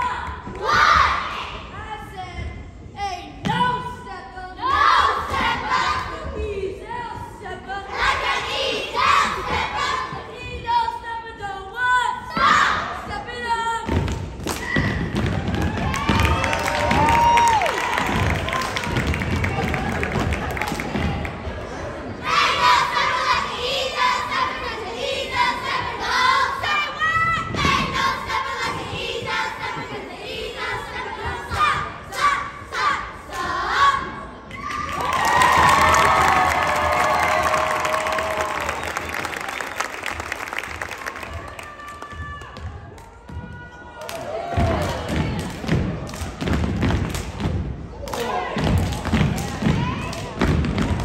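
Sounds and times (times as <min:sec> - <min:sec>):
group chanting and shouting: 0:00.0 - 0:02.1, 0:03.5 - 0:15.5, 0:20.7 - 0:38.6
stomps or claps: 0:13.8 - 0:21.4, 0:34.6 - 0:51.0.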